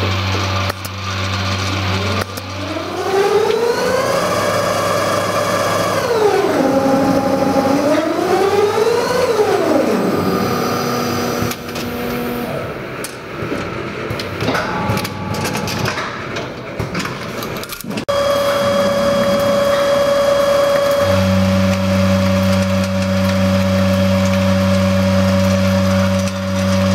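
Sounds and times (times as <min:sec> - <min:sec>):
motor whine: 0:00.0 - 0:12.8, 0:18.1 - 0:26.9
mechanical clicking and clatter: 0:13.0 - 0:19.9.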